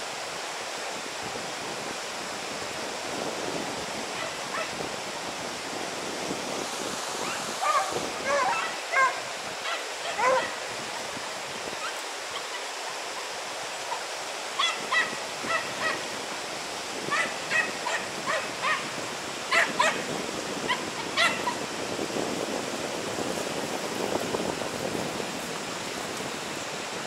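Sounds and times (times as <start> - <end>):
river water rushing: 0.0 - 27.0
dogs yelping: 7.6 - 10.6, 17.1 - 18.9, 19.5 - 20.0, 20.7 - 21.6.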